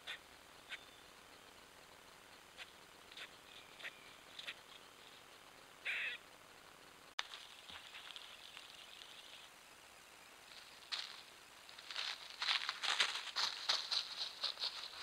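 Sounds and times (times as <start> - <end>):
animal chirps: 0.0 - 1.6, 2.6 - 4.7, 5.8 - 6.2.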